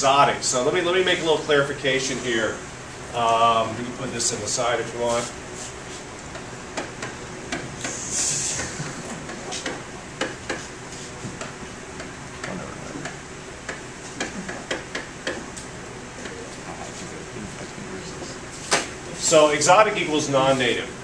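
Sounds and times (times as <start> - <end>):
stylus tapping on whiteboard: 9.3 - 15.4.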